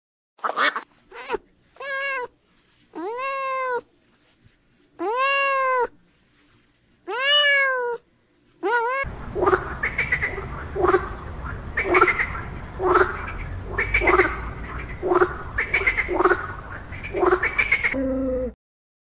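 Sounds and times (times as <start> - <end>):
animal calling: 0.4 - 2.3, 8.6 - 18.6
low rumble: 9.1 - 17.5.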